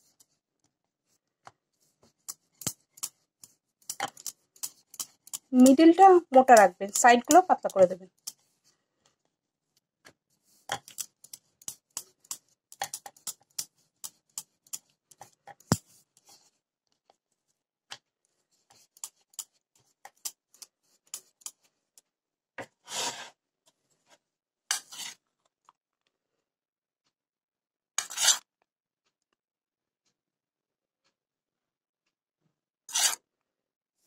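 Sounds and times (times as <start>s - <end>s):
rolling pin rolling dough: 2.0s - 8.4s, 10.5s - 16.4s.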